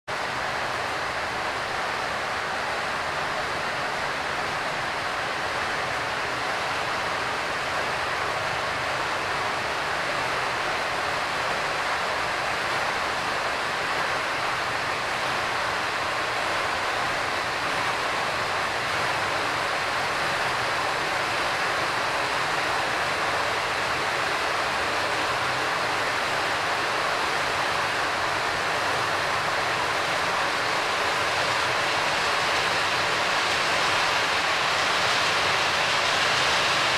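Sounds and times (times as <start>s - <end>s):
model train wheels rumbling on rails: 27.2s - 36.9s.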